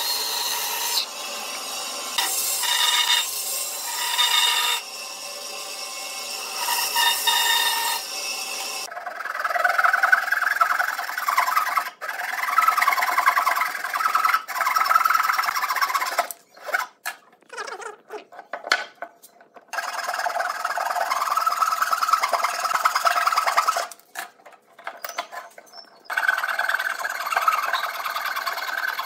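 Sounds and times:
band saw running: 0.0 - 8.9.

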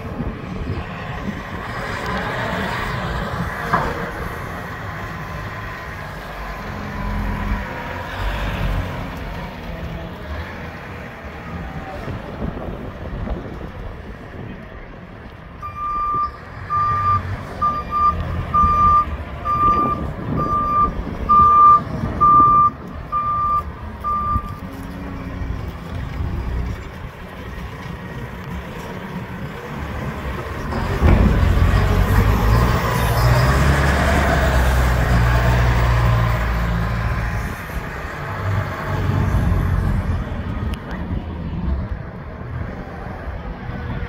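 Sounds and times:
reversing alarm beeps: 15.6 - 24.6.

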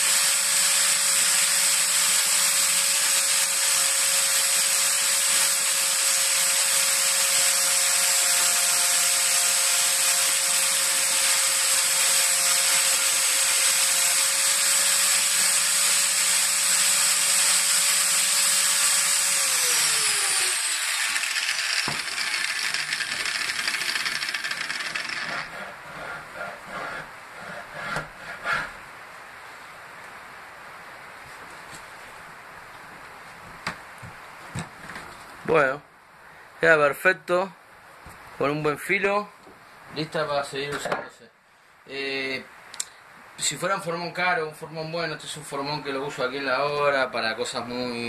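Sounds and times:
angle grinder whining: 0.0 - 26.1.

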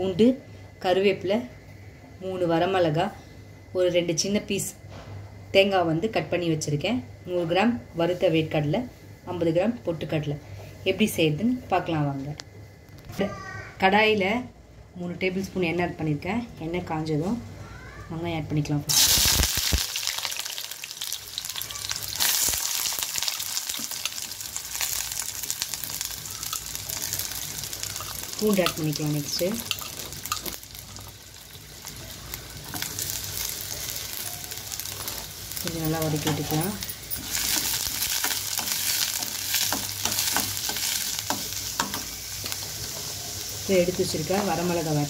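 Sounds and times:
onions sizzling in hot oil: 18.9 - 45.0.

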